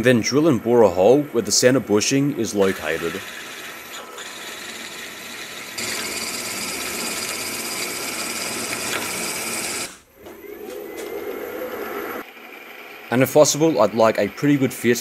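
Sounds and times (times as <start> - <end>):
drill cutting metal: 1.0 - 11.2
boring bar cutting metal: 1.0 - 11.6.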